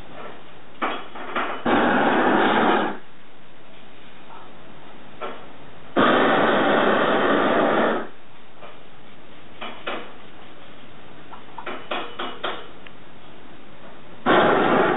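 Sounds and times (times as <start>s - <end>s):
gas torch flame hissing: 1.4s - 3.1s, 5.9s - 8.2s, 14.2s - 14.9s.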